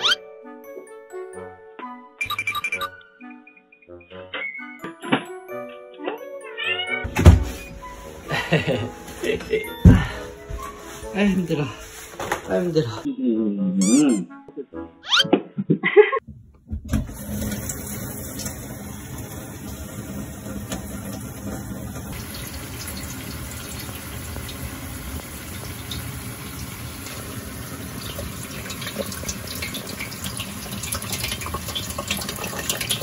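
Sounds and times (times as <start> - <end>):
water pouring into steel bowl: 17.1 - 33.0.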